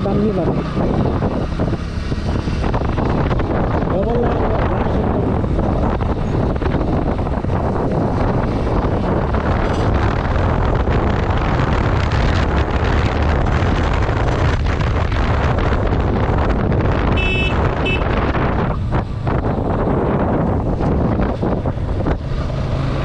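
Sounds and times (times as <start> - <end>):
motorcycle engine: 0.0 - 23.0
road noise: 0.0 - 23.0
wind on microphone: 0.0 - 23.0
horn beeps: 17.1 - 18.1.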